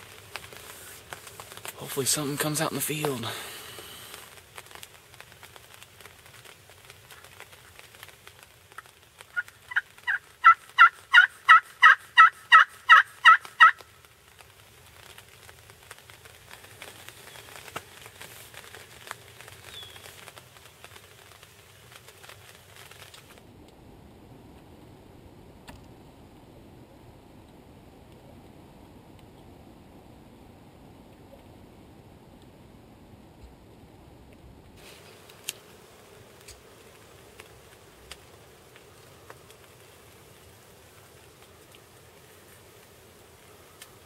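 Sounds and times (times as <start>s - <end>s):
turkey yelps: 9.3s - 13.8s.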